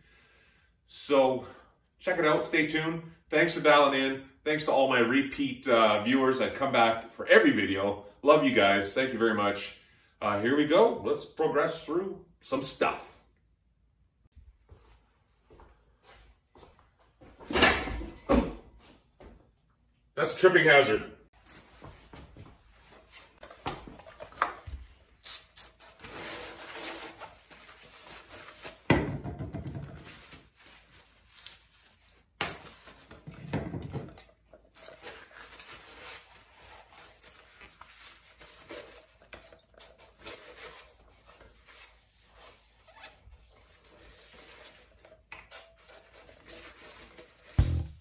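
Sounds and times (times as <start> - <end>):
spray bottle spraying: 25.2 - 25.8
loud thump: 47.6 - 48.0.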